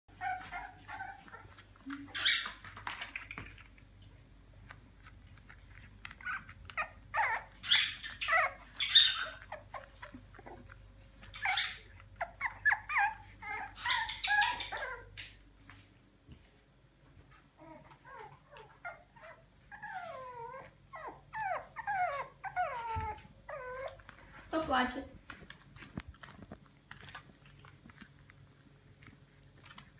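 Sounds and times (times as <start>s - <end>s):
puppies whining and yipping: 0.1s - 3.4s, 5.5s - 15.2s, 17.6s - 24.4s.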